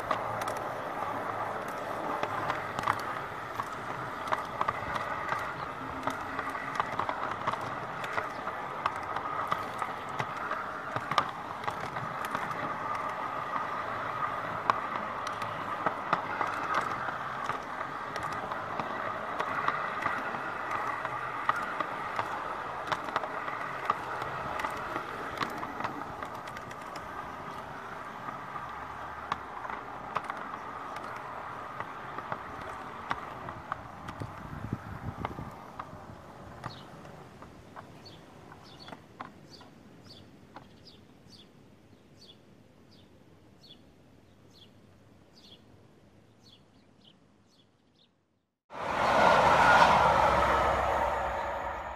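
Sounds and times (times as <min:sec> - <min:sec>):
model train rolling on rails: 0:00.0 - 0:40.9, 0:48.7 - 0:51.9
wheels clicking over track: 0:00.0 - 0:41.5.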